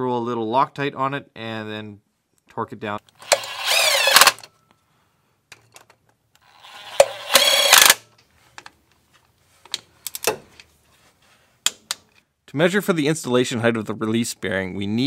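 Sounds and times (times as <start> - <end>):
cordless drill motor whine: 3.2 - 4.4, 6.5 - 8.0
torque wrench clicks: 3.2 - 4.4, 6.6 - 8.0.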